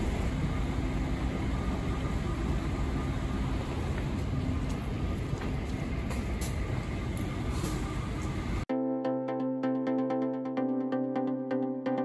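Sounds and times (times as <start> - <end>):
bus engine driving past: 0.0 - 8.7.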